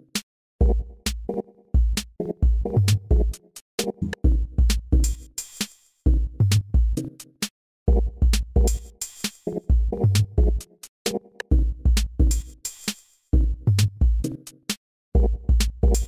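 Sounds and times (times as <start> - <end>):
electronic music: 2.0 - 4.4.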